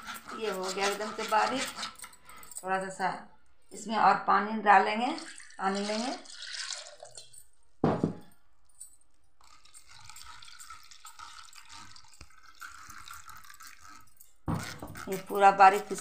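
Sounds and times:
liquid pouring into steel bowl: 5.1s - 8.0s, 9.4s - 16.0s.

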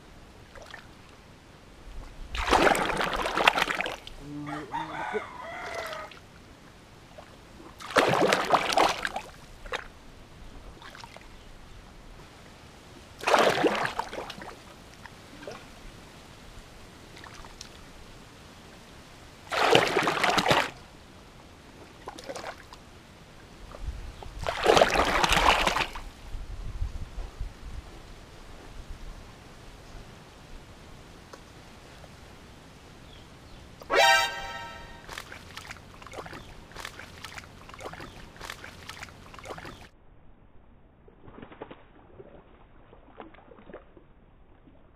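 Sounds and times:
hands splashing through mud: 2.4s - 4.0s, 13.2s - 14.5s, 19.5s - 20.8s, 24.4s - 26.0s, 34.3s - 39.9s.

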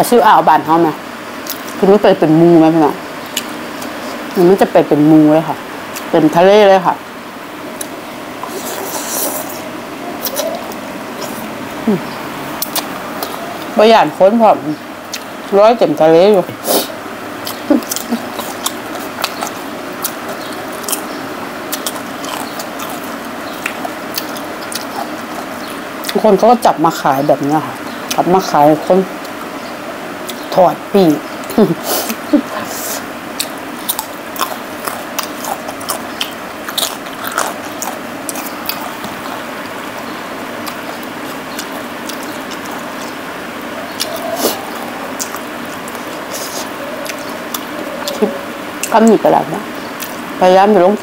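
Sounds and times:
steady background hiss: 0.0s - 51.0s
cucumber crunching and chewing: 7.8s - 13.8s, 16.8s - 26.4s, 33.3s - 49.1s, 49.8s - 50.3s.

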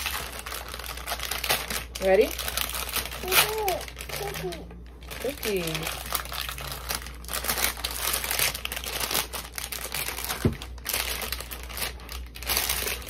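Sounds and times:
plastic package crinkling: 0.0s - 13.0s.

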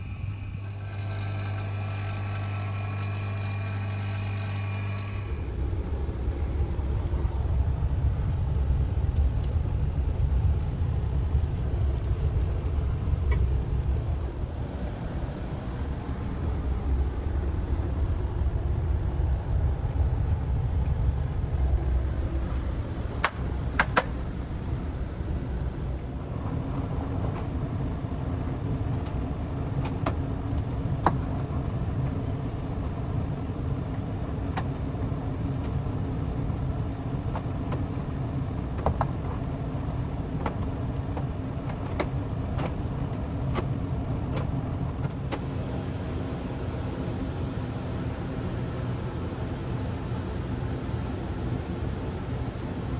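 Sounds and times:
low mechanical rumble: 0.0s - 52.9s
steady hum: 0.0s - 52.9s
sharp clicks and knocks: 23.2s - 24.2s, 40.4s - 42.8s.

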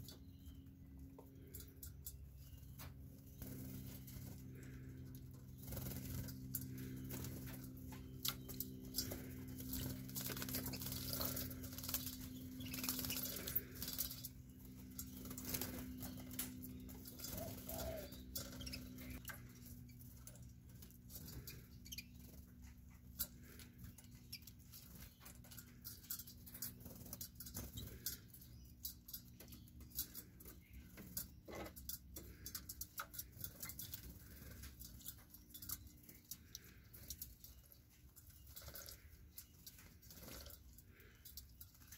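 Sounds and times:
steady low hum: 0.0s - 41.9s
wing fluttering: 3.0s - 23.6s.

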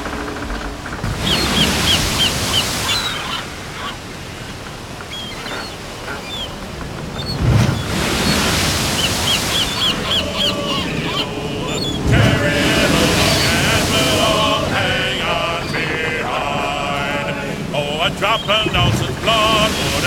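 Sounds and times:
ocean waves washing in: 0.0s - 20.0s.

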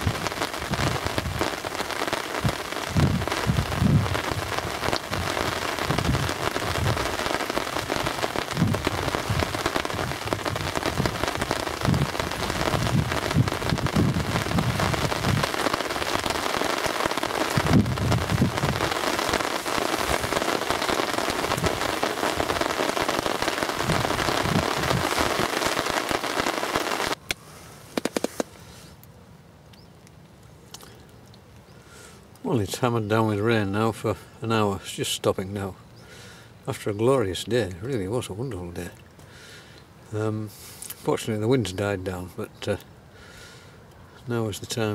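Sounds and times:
heavy rain on umbrella canopy: 0.0s - 27.2s, 27.9s - 28.9s
low rumbles of wind: 0.0s - 44.9s
faint clicks: 27.2s - 32.5s.

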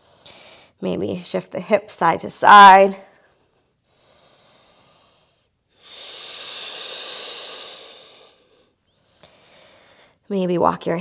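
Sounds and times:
woman breathing: 0.0s - 0.8s, 3.0s - 10.3s.

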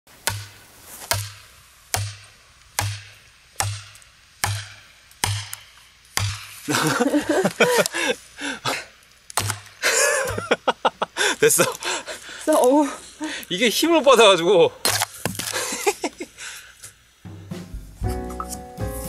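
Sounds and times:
hammer striking hatchet: 0.2s - 0.5s, 1.1s - 6.5s, 9.4s - 9.7s.

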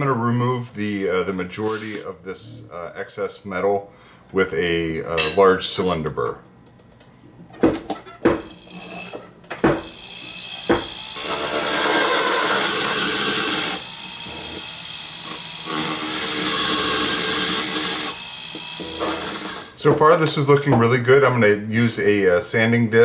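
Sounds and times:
rotary burr grinding metal: 8.5s - 9.3s, 9.9s - 19.8s.

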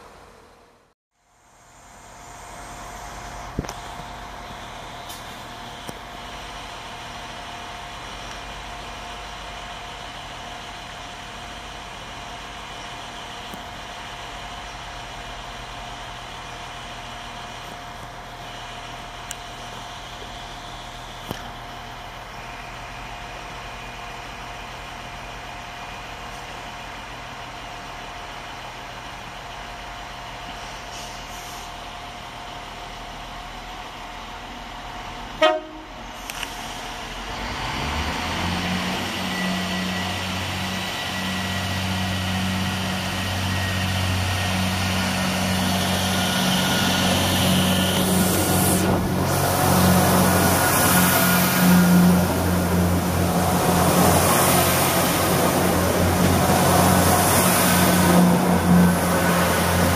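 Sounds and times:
diesel train engines idling: 0.0s - 59.9s
constant whine: 39.0s - 59.9s.

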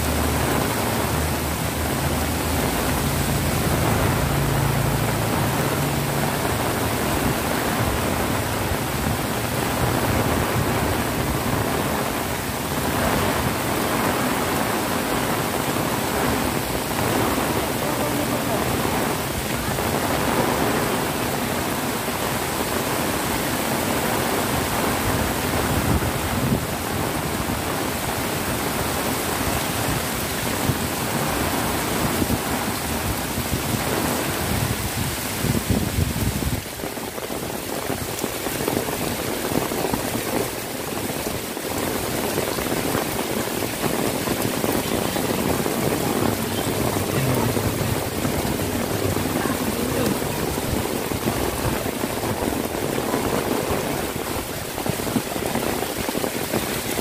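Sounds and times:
heavy rain on pavement: 0.0s - 57.0s.

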